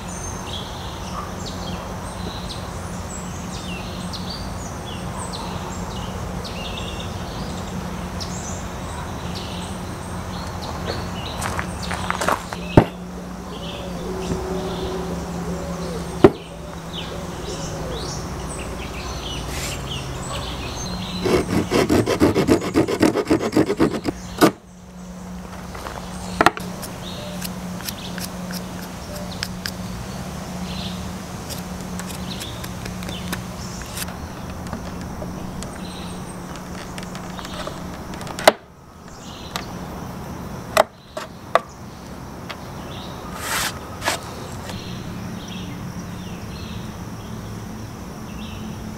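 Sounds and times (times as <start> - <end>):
hand saw cutting branch: 21.1 - 24.6, 26.5 - 29.8, 31.4 - 34.2, 43.3 - 44.8.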